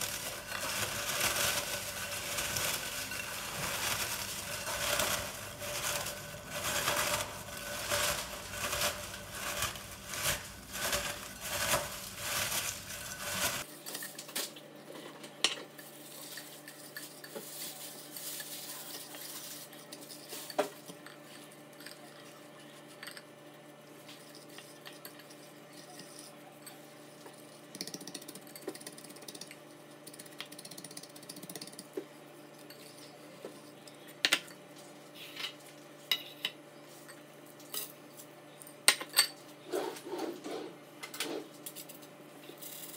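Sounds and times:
scraping or crunching strokes: 0:00.0 - 0:13.7
utensils clinking on a dish: 0:00.0 - 0:14.2, 0:24.0 - 0:26.9.

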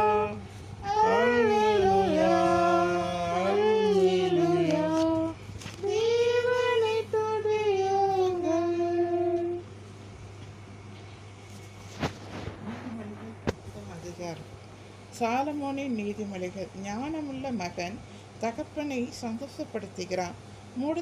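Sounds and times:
people singing a hymn: 0:00.0 - 0:09.6
faint low hum: 0:00.0 - 0:21.0.

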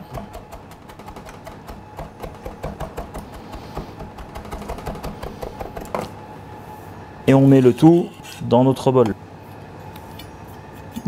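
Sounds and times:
knife chopping on cutting board: 0:00.0 - 0:06.1.

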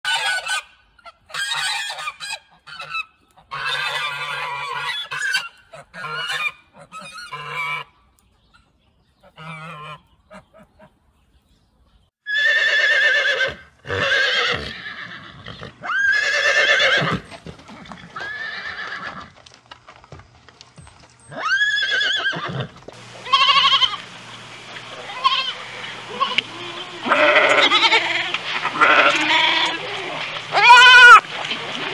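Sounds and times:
goose honking: 0:00.1 - 0:08.0, 0:09.2 - 0:10.9, 0:23.1 - 0:31.9
horse neighing: 0:12.2 - 0:19.3, 0:21.3 - 0:24.0, 0:25.0 - 0:31.2
goat bleating: 0:21.3 - 0:24.0, 0:24.9 - 0:31.2.

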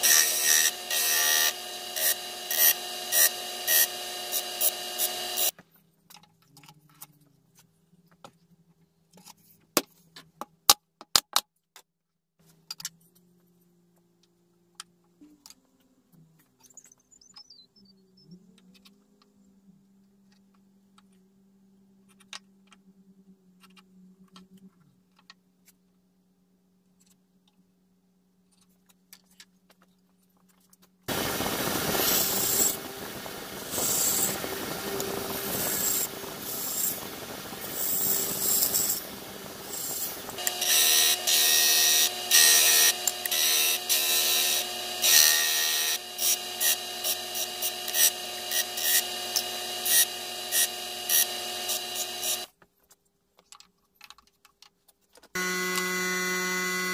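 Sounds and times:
disc sander running: 0:00.0 - 0:05.6, 0:31.1 - 0:52.5, 0:55.4 - 0:56.9
scroll saw cutting wood: 0:00.0 - 0:05.6, 0:31.1 - 0:52.5, 0:55.4 - 0:56.9
low hum: 0:31.1 - 0:40.7.

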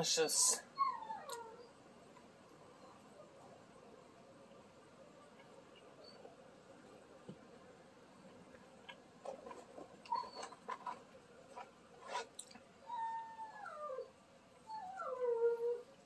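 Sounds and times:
dog whining: 0:00.7 - 0:01.8, 0:10.0 - 0:11.0, 0:12.8 - 0:16.0.

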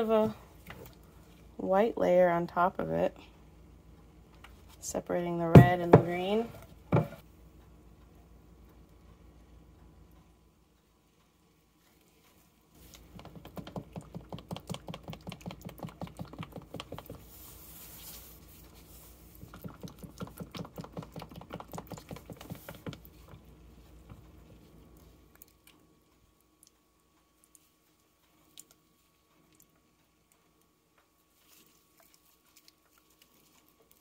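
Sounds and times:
skewer clicking through soap batter: 0:12.9 - 0:17.3, 0:19.4 - 0:23.4.

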